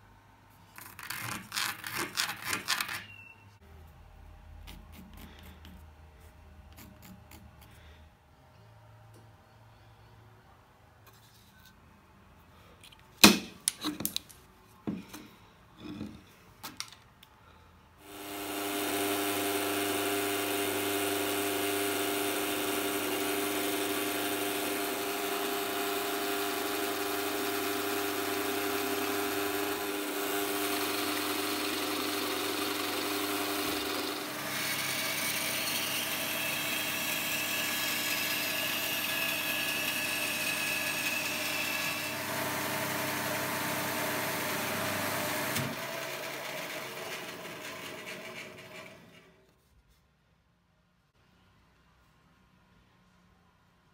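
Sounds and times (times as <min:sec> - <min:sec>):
bandsaw running: 0:18.0 - 0:49.3
drill press drilling wood: 0:18.1 - 0:49.3.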